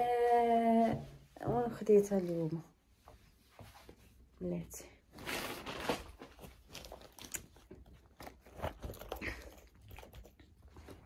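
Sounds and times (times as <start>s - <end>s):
material rustling and crinkling: 1.2s - 9.4s.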